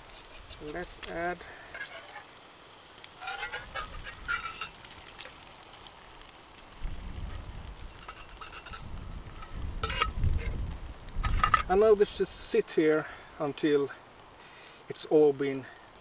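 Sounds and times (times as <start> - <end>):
egg frying with light crackle: 0.0 - 16.0
fork scraping metal cup: 8.0 - 8.9.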